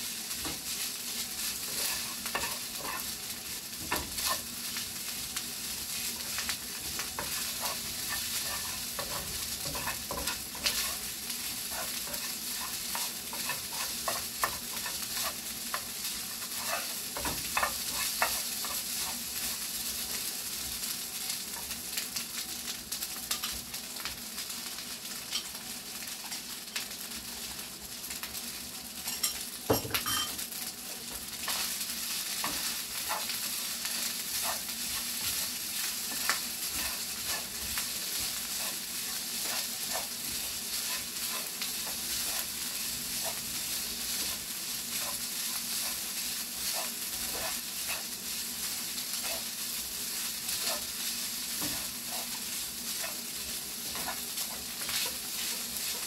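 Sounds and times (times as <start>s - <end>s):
rice sizzling in a pan: 0.0s - 56.0s
spatula scraping a pan: 1.4s - 3.2s, 3.8s - 4.5s, 6.2s - 19.6s, 31.0s - 56.0s.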